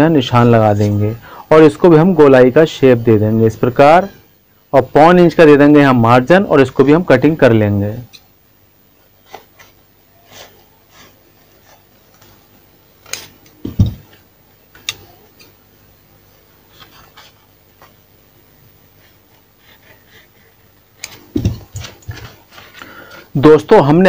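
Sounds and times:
shears snipping paper: 13.0s - 13.5s
dull knock: 13.6s - 14.0s
paper rustling: 16.7s - 18.1s.

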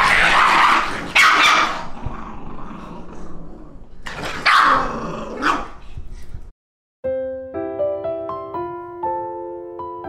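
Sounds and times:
dogs growling and barking: 0.0s - 6.0s.

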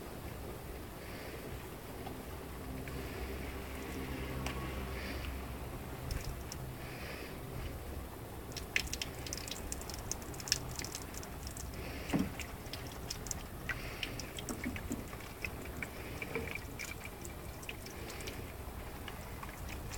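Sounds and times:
water dripping into watering can: 3.7s - 6.8s, 8.4s - 19.9s.

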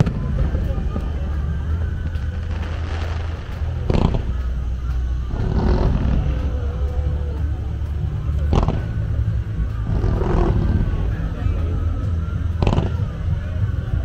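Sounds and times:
fireworks rumbling bursts: 0.0s - 14.0s
firework sharp bang: 2.0s - 4.5s, 8.4s - 9.1s.

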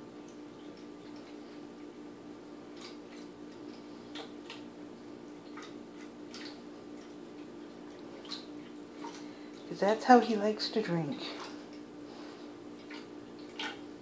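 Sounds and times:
cat lapping water: 5.3s - 9.7s, 12.7s - 14.0s.

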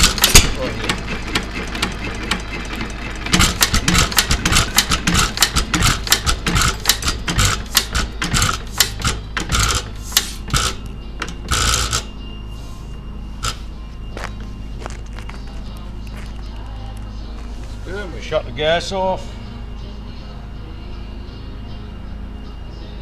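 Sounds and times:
engine valve gear clicking: 0.0s - 12.1s
engine puffs: 0.0s - 14.8s.

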